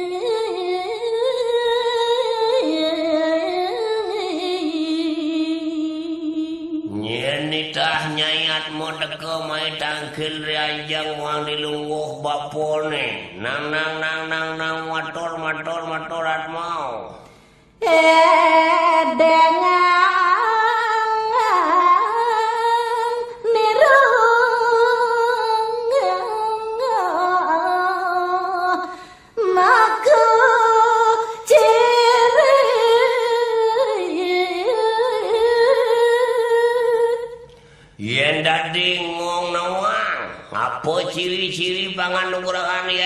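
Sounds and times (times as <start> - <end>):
woman singing unaccompanied: 0.0 - 6.9, 17.8 - 37.4
man's low voice: 38.0 - 43.0.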